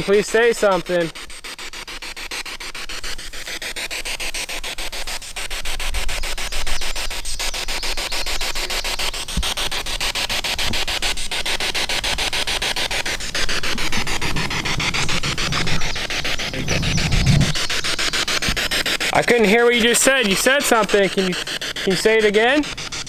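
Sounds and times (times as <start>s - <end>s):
radio static hiss: 0.0s - 23.0s
rapid even ticking: 0.0s - 23.0s
low rumble: 13.8s - 17.7s.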